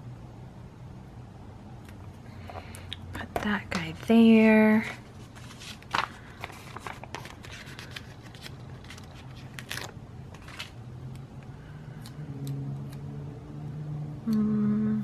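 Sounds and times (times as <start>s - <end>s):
sticker paper rustling: 3.4s - 10.8s
person humming: 14.2s - 15.0s.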